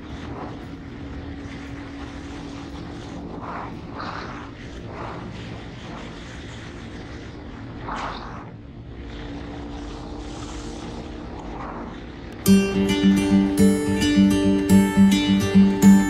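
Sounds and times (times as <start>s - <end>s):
wind noise on microphone: 0.0s - 12.5s
acoustic guitar music: 12.4s - 16.0s.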